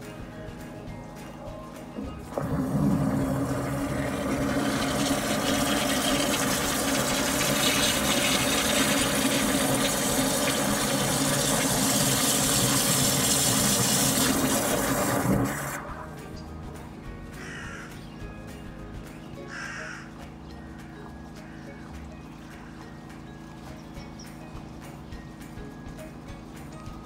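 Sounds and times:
water gushing into a drain: 0:02.3 - 0:16.3.

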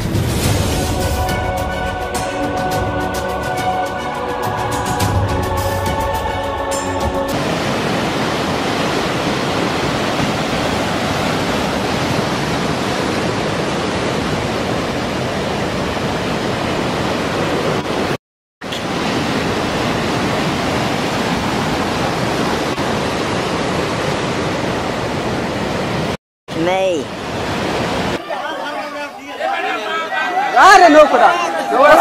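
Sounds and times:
ocean surf crashing: 0:00.0 - 0:32.0.

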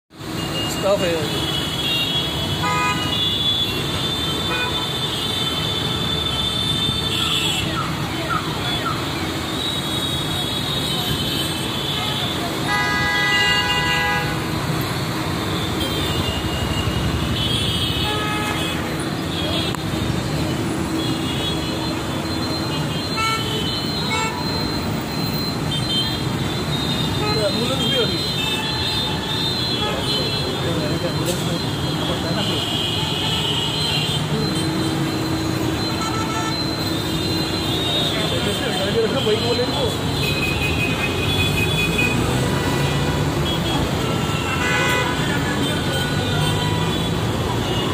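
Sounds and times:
road traffic engines and tyres: 0:00.1 - 0:47.9
vehicle horn tooting: 0:00.4 - 0:07.8, 0:09.7 - 0:14.5, 0:25.7 - 0:47.9.

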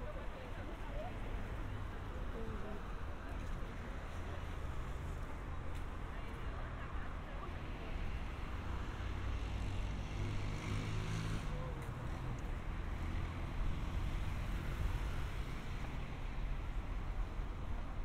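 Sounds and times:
road traffic hum: 0:00.0 - 0:18.0
vehicle engine passing: 0:09.8 - 0:11.8.

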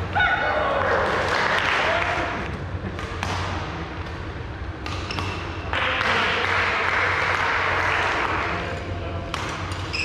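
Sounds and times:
racket hitting shuttlecock: 0:04.8 - 0:06.3.

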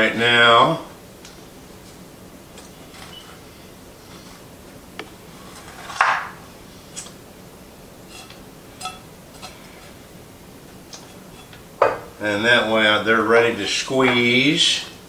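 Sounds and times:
kitchenware clinking: 0:08.1 - 0:09.9, 0:11.0 - 0:12.2.

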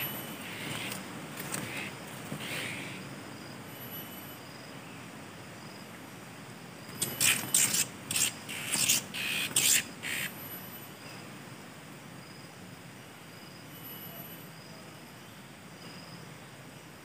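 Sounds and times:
faint insect trill: 0:00.0 - 0:17.0.

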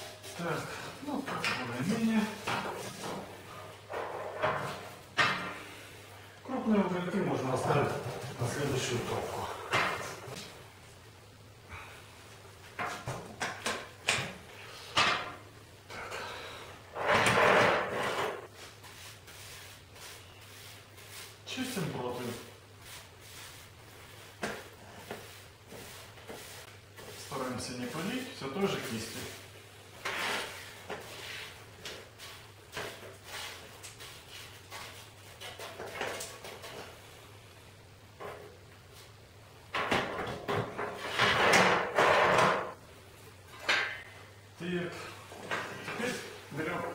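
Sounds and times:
brush sweeping ash off metal: 0:18.1 - 0:35.9.

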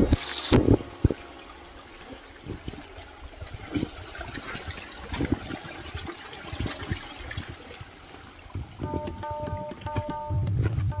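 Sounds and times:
running water: 0:00.0 - 0:10.8
low thumps: 0:08.6 - 0:11.0.

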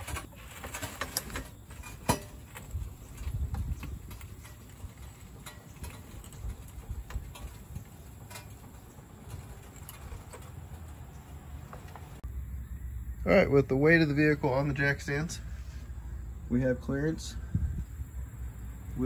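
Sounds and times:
metal clunk of car on jack stands: 0:01.8 - 0:02.5.

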